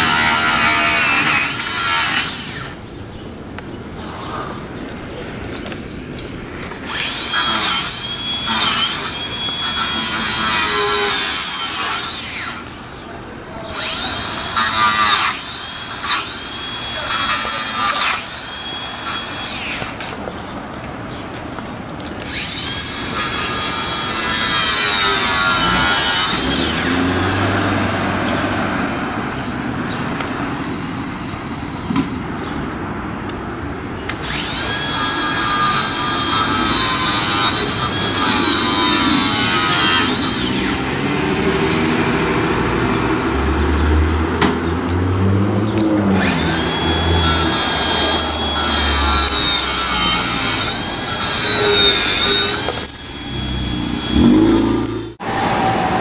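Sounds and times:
power tool cutting metal: 0.0s - 2.8s, 6.8s - 12.8s, 13.6s - 20.1s, 22.3s - 28.6s, 34.2s - 44.5s, 45.2s - 56.0s.

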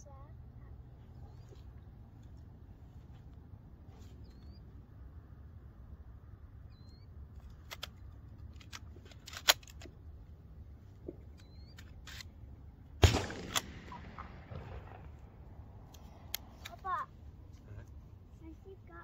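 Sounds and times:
shotgun action clicking: 7.5s - 10.0s, 13.0s - 15.2s
gunshot bang: 13.0s - 15.9s.

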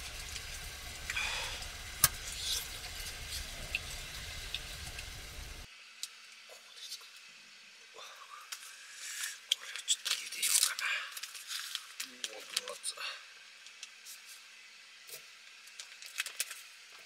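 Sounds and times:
plastic crinkles: 9.6s - 12.8s, 15.1s - 17.0s.

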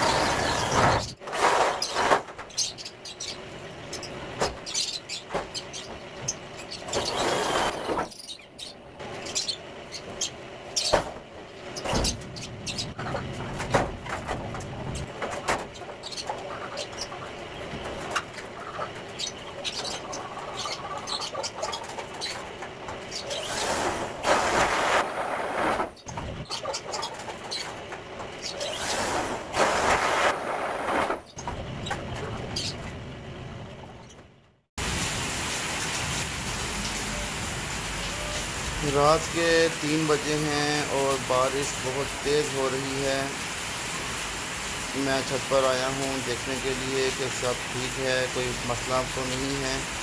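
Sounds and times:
heavy rain hiss: 34.8s - 50.0s.

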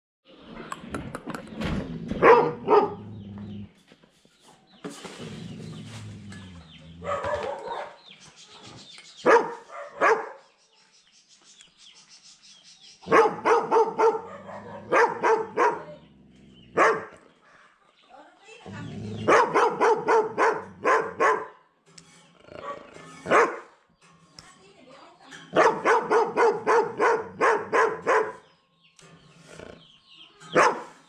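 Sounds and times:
dog barking loudly: 2.2s - 3.2s, 7.0s - 8.1s, 9.2s - 10.4s, 13.0s - 16.0s, 16.7s - 17.2s, 19.2s - 21.6s, 22.6s - 23.7s, 25.5s - 28.5s, 30.6s - 30.9s.

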